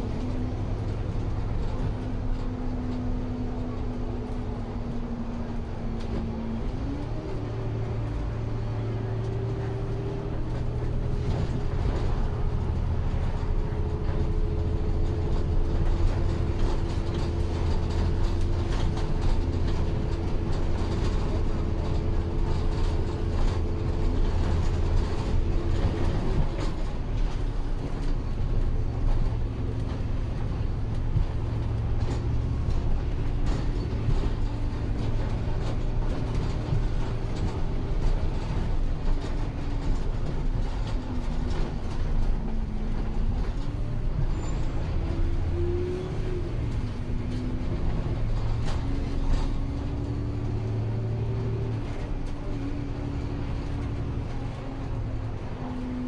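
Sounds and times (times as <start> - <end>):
bus engine rumble: 0.0 - 56.0.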